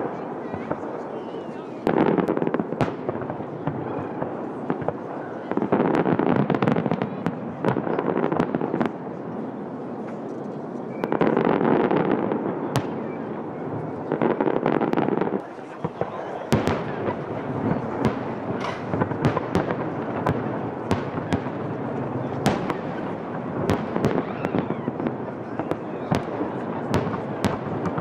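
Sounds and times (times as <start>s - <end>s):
fireworks crackling: 0.0s - 28.0s.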